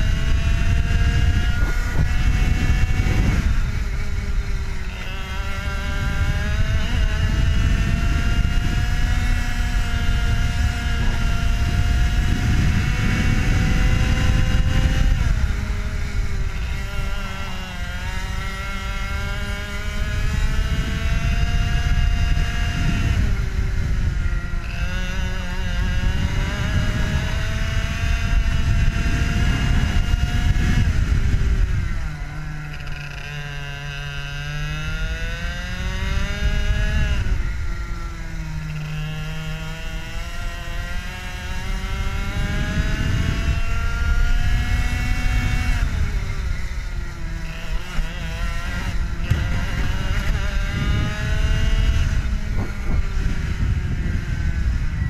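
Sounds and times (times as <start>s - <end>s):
kart engine racing: 0.0s - 55.0s
wind rumble on microphone: 0.0s - 55.0s.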